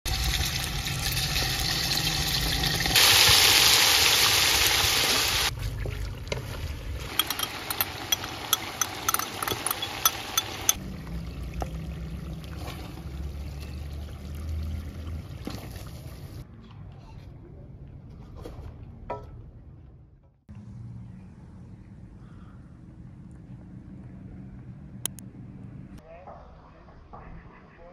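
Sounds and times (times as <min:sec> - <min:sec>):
hot oil crackling and popping: 0:00.1 - 0:12.6.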